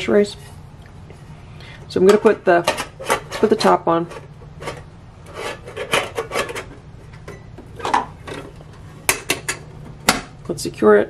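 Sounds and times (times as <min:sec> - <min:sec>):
metal lid scraping on pot rim: 0:02.5 - 0:06.7.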